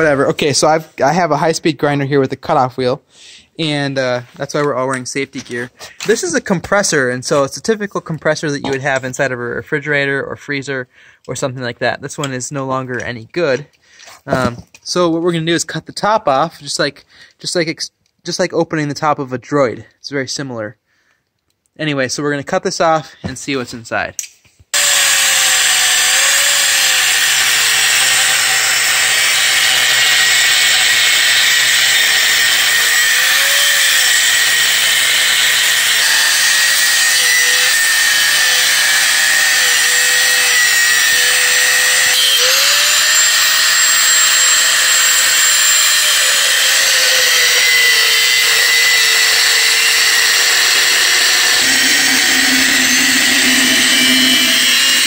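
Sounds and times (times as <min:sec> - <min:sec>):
angle grinder cutting steel: 0:24.8 - 0:55.0.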